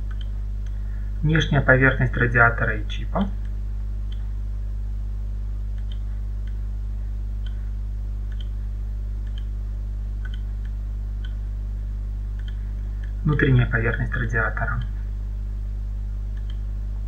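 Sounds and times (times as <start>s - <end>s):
steady low hum: 0.0s - 17.0s
faint mouse clicks: 0.1s - 0.8s, 5.8s - 6.6s, 8.3s - 8.5s, 9.2s - 9.5s, 10.2s - 11.4s, 12.4s - 13.2s, 16.4s - 16.6s.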